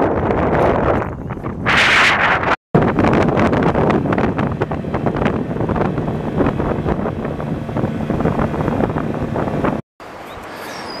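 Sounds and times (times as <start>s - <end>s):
wind buffeting microphone: 0.0s - 9.8s
outboard motor running: 2.8s - 9.8s.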